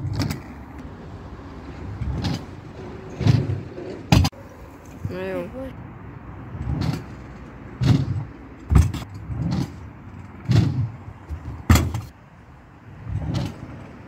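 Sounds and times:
scooter rumbling on ramps: 1.8s - 4.4s, 6.6s - 12.1s, 13.0s - 14.0s
scooter landing knocks: 7.8s - 9.8s, 10.4s - 12.1s.

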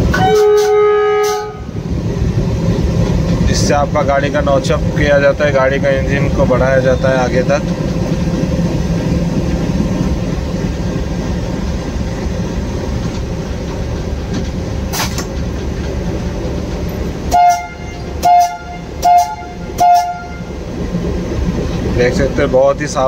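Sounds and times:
locomotive engine rumbling: 0.0s - 23.0s
locomotive horn blasts: 0.1s - 1.8s, 17.3s - 20.6s.

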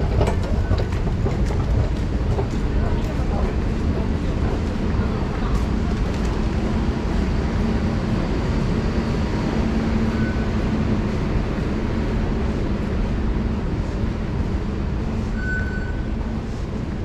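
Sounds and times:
station concourse rumble and hum: 0.0s - 17.0s.

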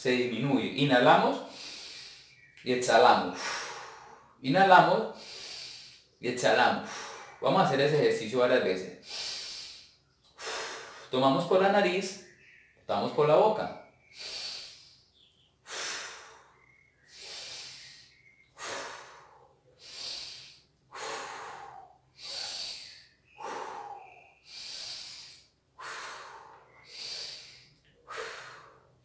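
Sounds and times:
man breathing deeply: 1.4s - 2.5s, 3.3s - 7.6s, 9.0s - 11.2s, 14.0s - 29.0s.

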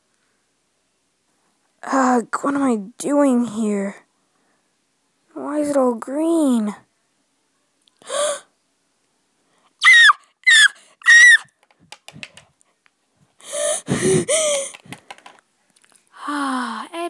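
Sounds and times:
child squealing: 9.8s - 11.5s
toys clicking: 11.5s - 12.5s, 14.7s - 15.9s.

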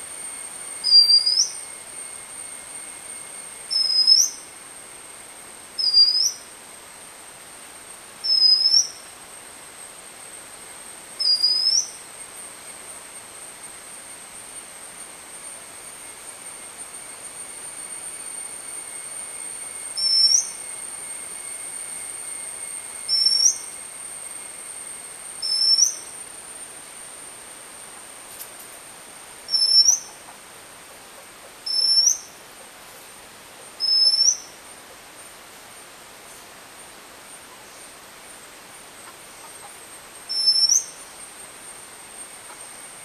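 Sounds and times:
faint high-pitched tone: 0.0s - 4.7s
bird whistling rising notes: 0.8s - 4.5s, 5.8s - 6.5s, 8.2s - 9.0s, 11.2s - 12.0s, 18.2s - 24.5s, 25.4s - 26.2s, 29.5s - 30.2s, 31.7s - 32.4s, 33.8s - 34.5s, 40.3s - 41.0s.

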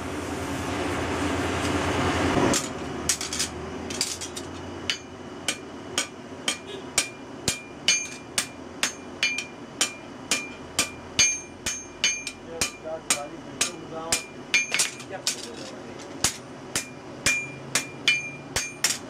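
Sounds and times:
hammer ringing on anvil: 4.9s - 15.1s, 16.2s - 19.0s.

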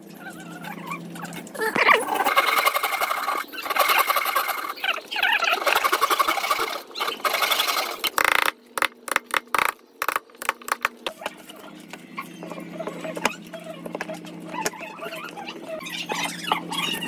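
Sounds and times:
hand saw cutting wood: 5.6s - 8.1s.

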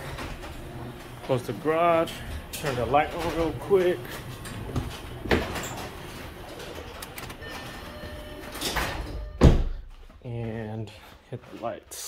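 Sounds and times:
garage door opener running and rattling: 0.0s - 9.4s
door thudding on floor: 9.4s - 9.8s.

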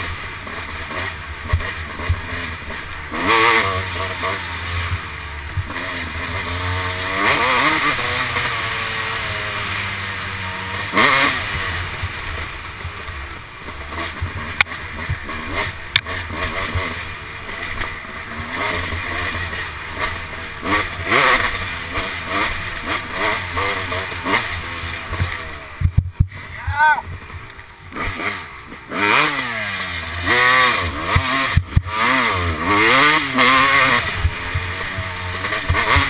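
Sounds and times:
dirt bike engine revving: 0.0s - 36.0s.

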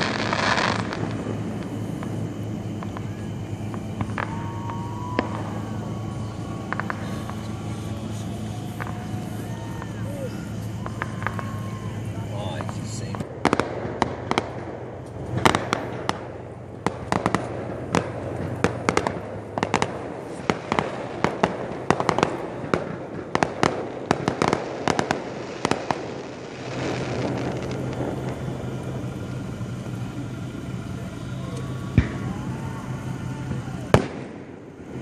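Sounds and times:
fireworks bangs: 0.0s - 35.0s
low hum: 0.0s - 35.0s
steady hiss: 0.0s - 35.0s.

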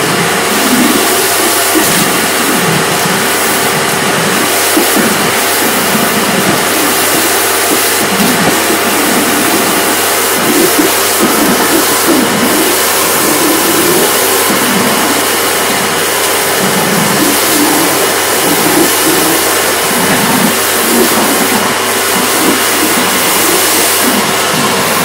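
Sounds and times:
pressure washer water jets hissing: 0.0s - 25.0s.

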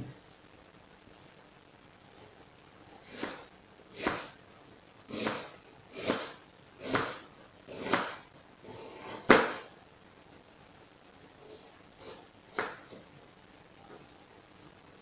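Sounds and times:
knife slicing onion: 3.1s - 4.4s, 5.1s - 8.2s, 8.9s - 9.7s.

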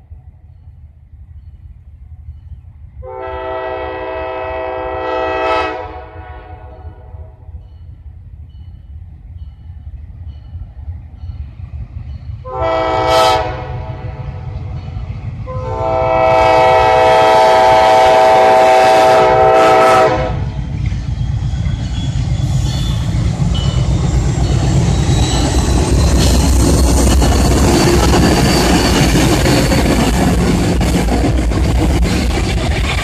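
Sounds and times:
locomotive air horn: 3.0s - 7.4s, 12.4s - 14.2s, 15.4s - 20.5s.

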